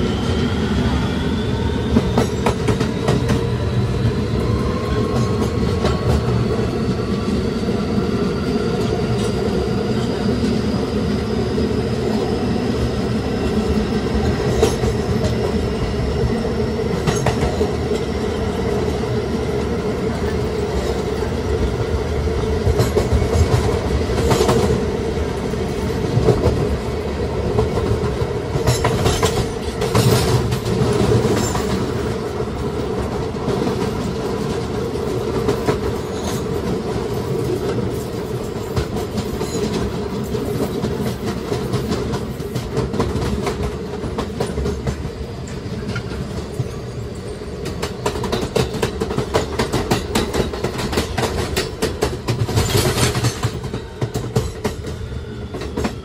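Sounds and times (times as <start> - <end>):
wheels clacking over rail joints: 47.6 - 55.0.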